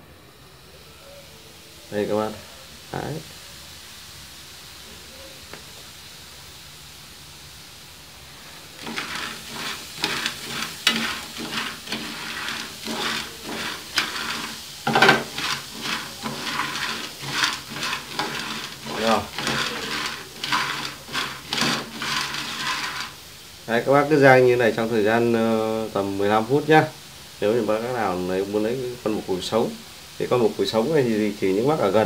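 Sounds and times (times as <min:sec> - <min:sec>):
faint steady hiss: 0:00.0 - 0:32.0
beetles rattling in a stirred pan: 0:08.3 - 0:32.0.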